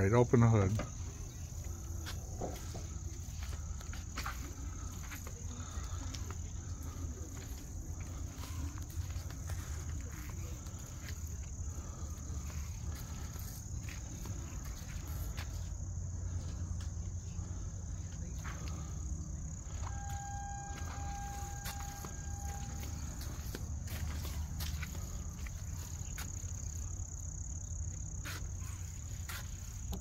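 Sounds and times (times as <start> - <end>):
insects buzzing: 0.0 - 30.0
steady tone: 19.5 - 24.8.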